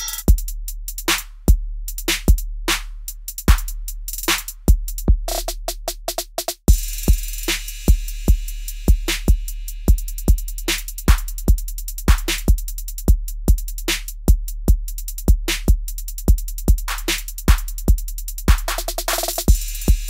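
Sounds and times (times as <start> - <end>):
electronic music with drum-machine beat: 0.0 - 0.5, 16.2 - 20.0.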